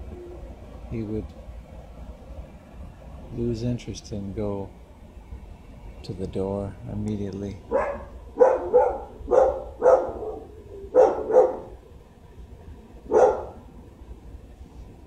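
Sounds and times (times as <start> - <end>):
dog barking: 7.7 - 11.8, 13.1 - 13.7.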